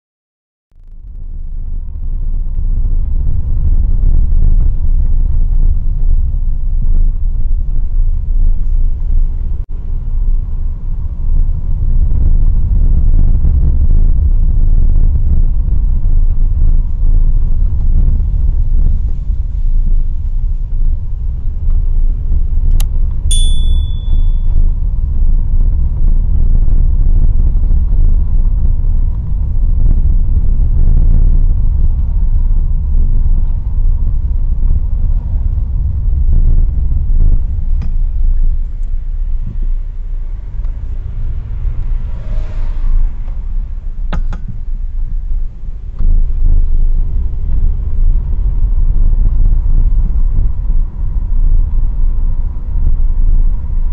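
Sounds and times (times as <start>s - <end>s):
car engine and tyres rumbling: 0.8s - 53.9s
brief high tone: 23.3s - 24.7s.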